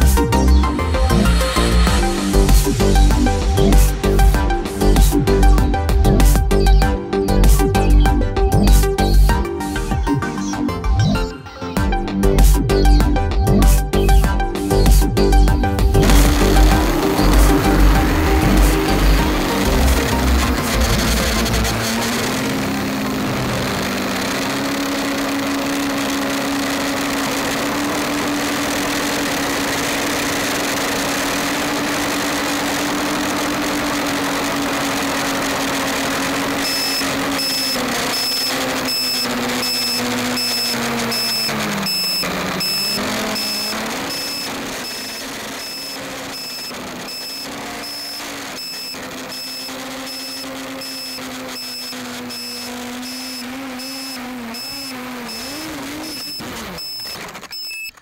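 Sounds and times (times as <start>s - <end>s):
drone motors whining: 0.0s - 58.0s
rapid high beeps: 15.3s - 58.0s.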